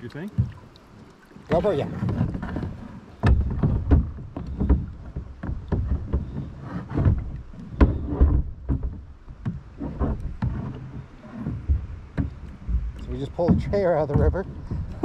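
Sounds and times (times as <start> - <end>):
chair knocking on plastic hulls: 11.5 - 15.0.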